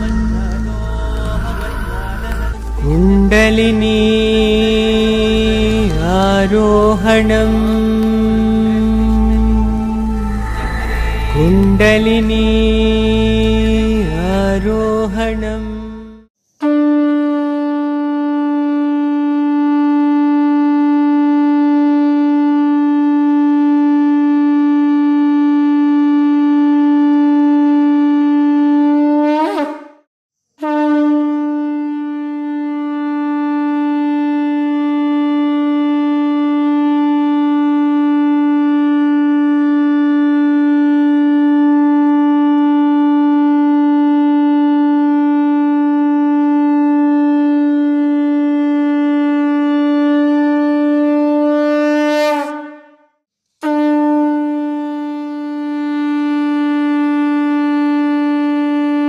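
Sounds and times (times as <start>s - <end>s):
conch shell blasts: 0.0s - 15.2s, 30.6s - 59.0s.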